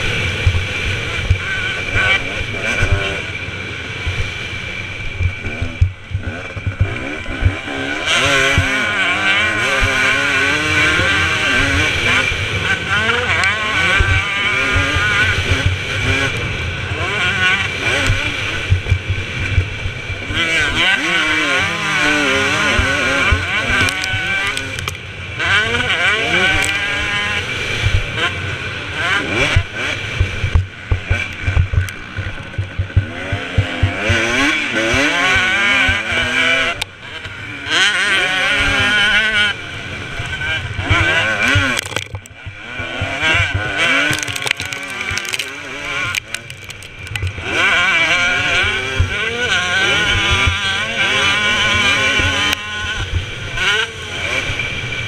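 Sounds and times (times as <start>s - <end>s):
motocross engine revving: 0.0s - 55.0s
motorbike thuds on rutted track: 4.0s - 28.3s, 29.0s - 37.4s, 40.2s - 53.8s
low thumps: 30.2s - 34.1s.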